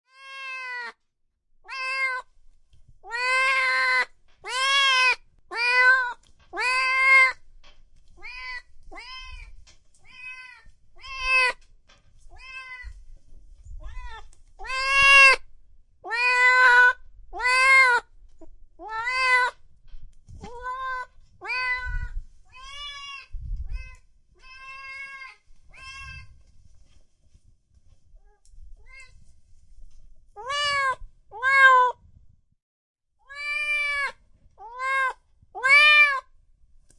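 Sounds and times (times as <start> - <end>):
kitten meowing: 1.7 - 2.2, 3.0 - 7.4, 10.1 - 11.6, 13.8 - 15.4, 16.0 - 18.0, 30.4 - 32.0, 33.3 - 36.2.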